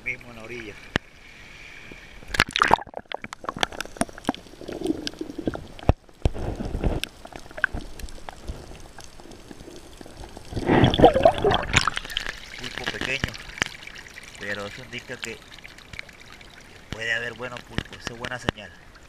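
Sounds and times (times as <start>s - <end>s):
muffled water sloshing underwater: 0.7s - 14.4s.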